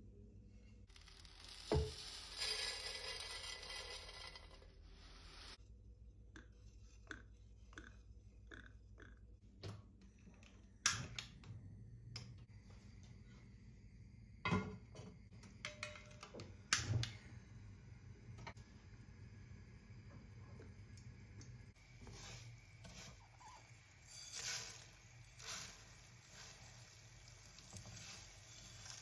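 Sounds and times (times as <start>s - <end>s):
dry noodles poured into pan: 0.9s - 5.5s, 24.0s - 29.0s.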